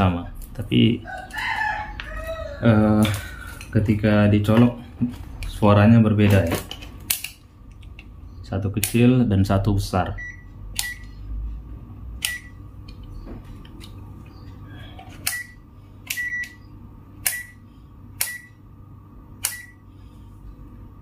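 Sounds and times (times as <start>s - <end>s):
multimeter beeping: 10.1s - 11.3s, 12.2s - 12.6s, 15.1s - 17.6s, 18.2s - 18.6s, 19.4s - 19.8s
sharp click: 17.2s - 17.5s, 18.2s - 18.5s, 19.4s - 19.7s.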